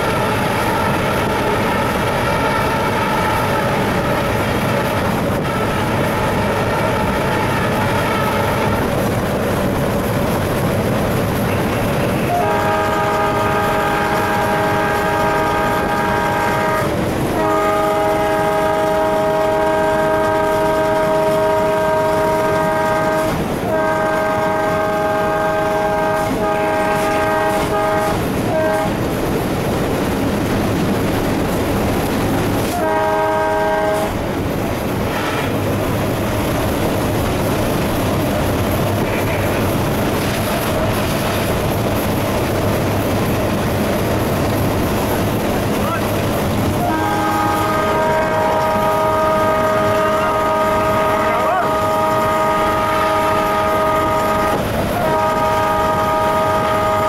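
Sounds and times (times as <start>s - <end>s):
locomotive horn blasts: 0.0s - 9.0s, 11.5s - 29.0s, 32.6s - 34.3s, 46.6s - 57.0s
locomotive running on rails: 0.0s - 57.0s.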